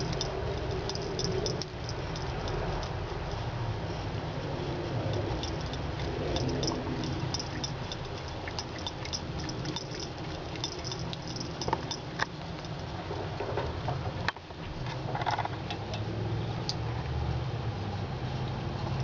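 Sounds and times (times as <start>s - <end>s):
cat lapping water: 4.6s - 13.0s.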